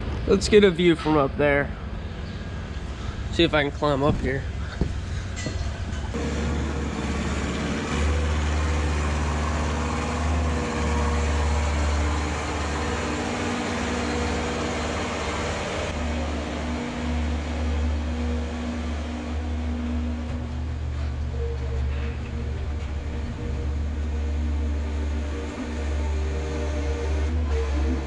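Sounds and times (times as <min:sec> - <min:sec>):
hay chopper machine hum: 0:06.1 - 0:28.0.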